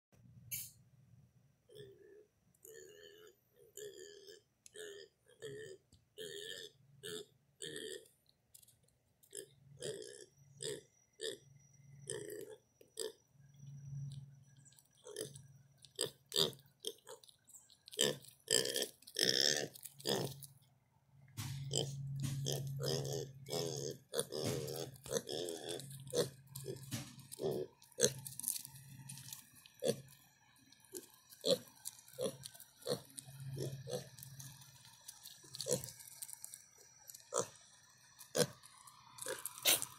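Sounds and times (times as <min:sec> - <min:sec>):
piglets grunting: 0:01.7 - 0:08.1, 0:15.0 - 0:17.3, 0:17.9 - 0:20.5, 0:21.5 - 0:30.2, 0:30.8 - 0:36.5, 0:37.1 - 0:37.6, 0:38.2 - 0:39.9.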